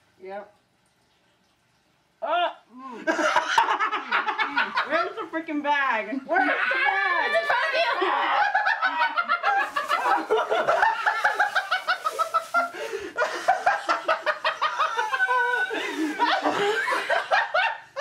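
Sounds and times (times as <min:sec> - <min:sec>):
person laughing hard: 0:02.2 - 0:05.0, 0:06.4 - 0:17.8.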